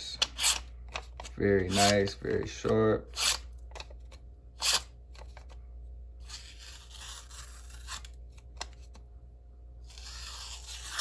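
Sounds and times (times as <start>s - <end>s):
knife blade slicing paper: 9.8s - 11.0s.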